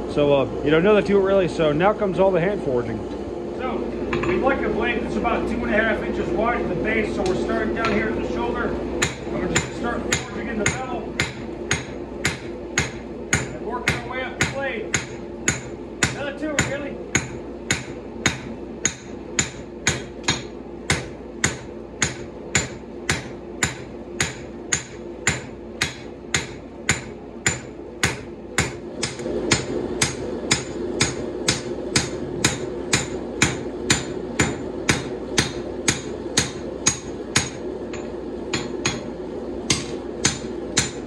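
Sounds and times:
hammer striking blade on anvil: 0:09.0 - 0:39.1, 0:39.7 - 0:41.0.

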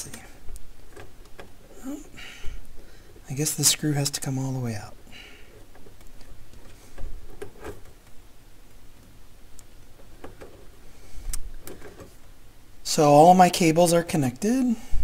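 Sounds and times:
low mains hum: 0:00.0 - 0:15.0.

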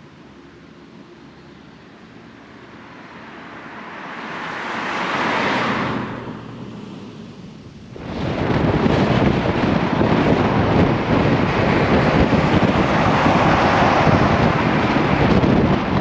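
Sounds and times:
loud rushing noise: 0:02.7 - 0:16.0
low rumble: 0:05.7 - 0:16.0.

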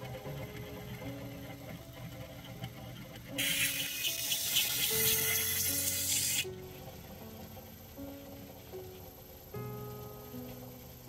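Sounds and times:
belt grinder grinding blade: 0:00.0 - 0:07.2
soft piano music: 0:00.0 - 0:11.0.

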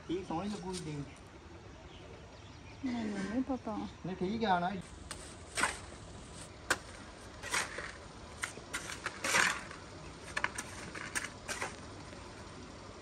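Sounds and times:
trowel scraping a metal pan: 0:05.1 - 0:11.8.

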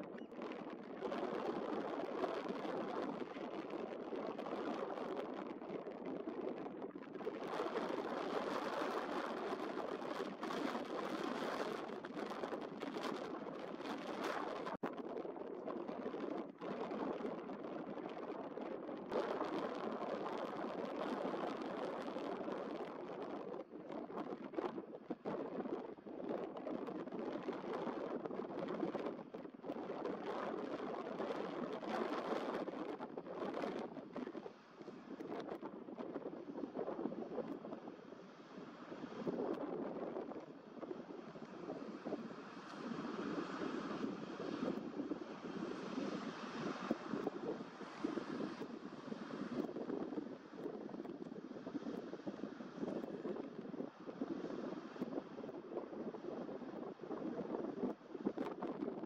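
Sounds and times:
choppy water: 0:00.0 - 0:59.0
wind on microphone: 0:00.0 - 0:59.0
water rushing in boat wake: 0:40.3 - 0:56.2.

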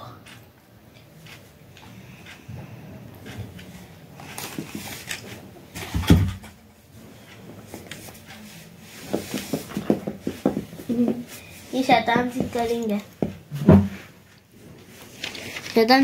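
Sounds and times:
heavy thump: 0:13.2 - 0:14.1.

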